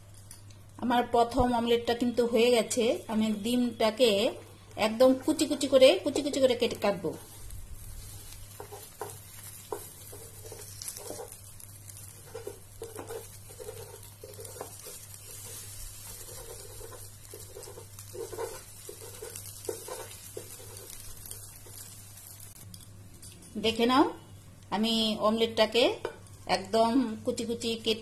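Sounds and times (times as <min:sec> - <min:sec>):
omelette sizzling in frying pan: 0:00.0 - 0:28.0
utensil knocking and scraping pan: 0:08.5 - 0:21.1.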